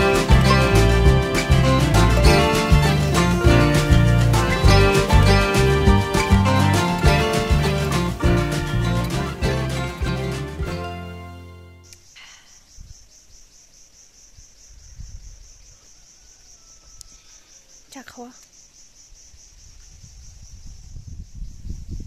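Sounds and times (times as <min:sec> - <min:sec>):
background music: 0:00.0 - 0:11.9
insects trilling: 0:11.8 - 0:22.0.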